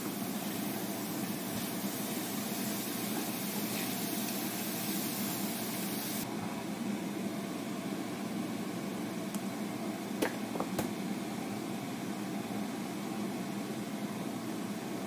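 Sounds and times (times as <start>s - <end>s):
mushrooms sizzling in a frying pan: 0.0s - 6.2s.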